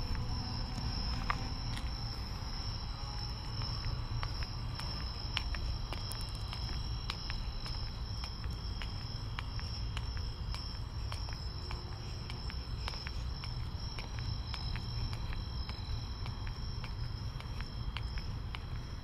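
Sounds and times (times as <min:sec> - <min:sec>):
low steady rumble: 0:00.0 - 0:08.1
crickets trilling: 0:00.0 - 0:19.0.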